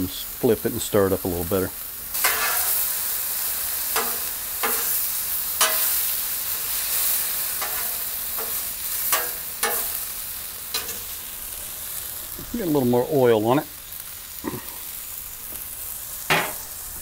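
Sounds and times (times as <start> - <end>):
meat sizzling on griddle: 0.0 - 17.0
metal spatula scraping griddle: 2.1 - 10.1, 10.7 - 11.2, 16.3 - 16.8.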